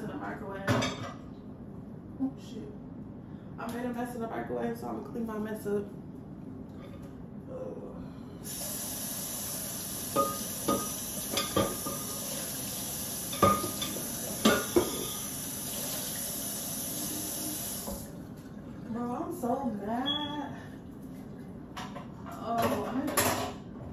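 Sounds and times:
glass plate clinking: 10.2 - 12.1, 13.3 - 15.3
tap running into sink: 17.4 - 18.1.

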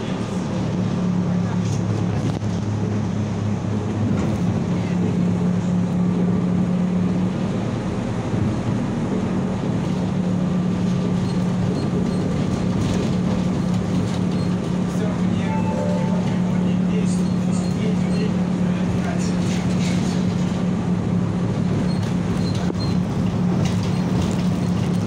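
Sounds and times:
tram running noise: 0.0 - 25.0.

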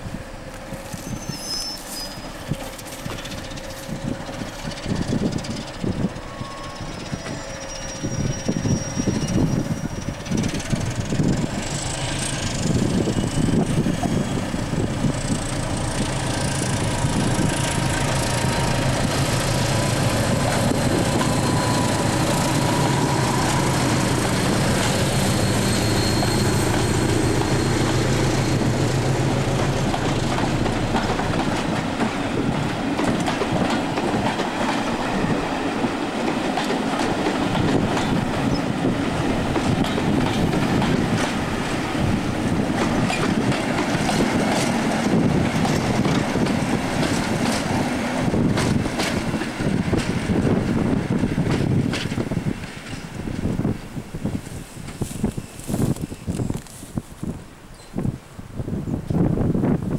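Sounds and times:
diesel locomotives passing: 0.0 - 59.9
faint wheel squeal: 0.8 - 10.5, 24.8 - 28.9
train wheels clattering over rail joints: 1.8 - 6.4, 7.0 - 56.8.

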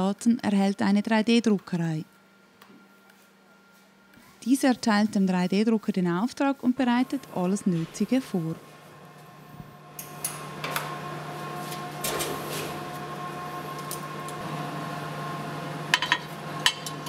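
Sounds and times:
printer humming and whining: 6.5 - 17.0.

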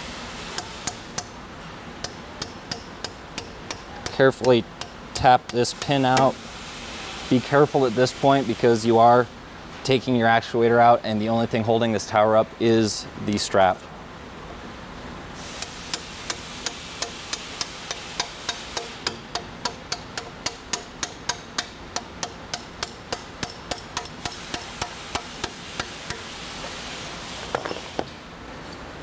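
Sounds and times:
hammer tapping a punch: 2.0 - 6.3, 15.6 - 26.2.

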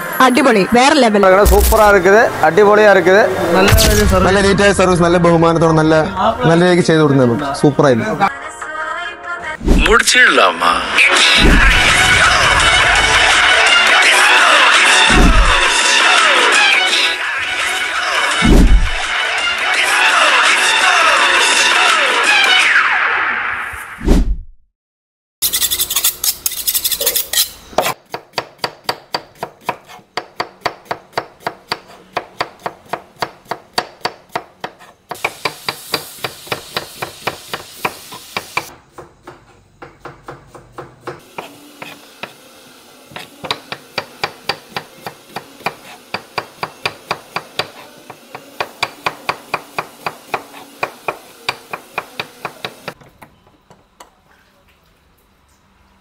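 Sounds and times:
knife honed on sharpening steel: 25.4 - 28.0
knife slicing onions on board: 25.4 - 42.4, 43.1 - 52.9.

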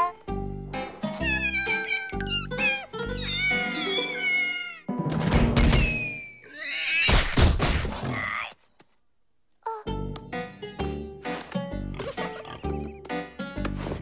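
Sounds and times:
cartoon cat crying: 1.1 - 4.9, 5.9 - 7.2
cartoon sound effects: 1.2 - 4.8, 5.8 - 7.3.

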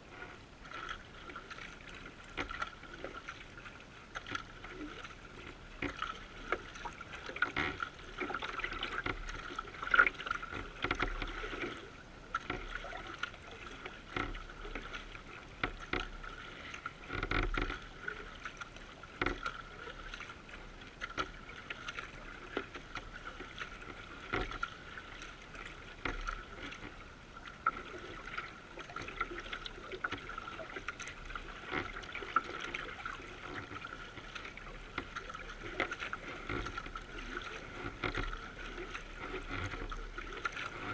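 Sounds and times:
paddle blades dipping in water: 0.0 - 40.9
water rushing along kayak hull: 0.0 - 40.9.

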